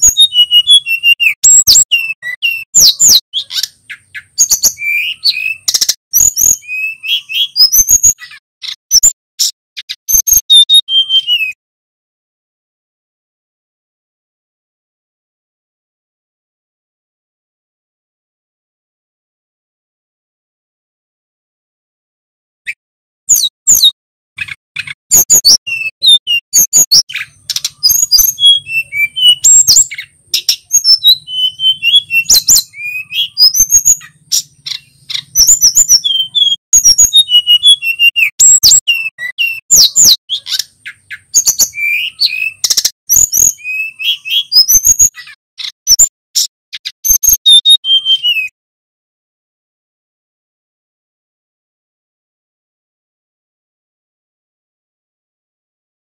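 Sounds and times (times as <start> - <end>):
flycatcher singing chirps: 0.0 - 11.6, 23.3 - 46.1, 46.8 - 48.5.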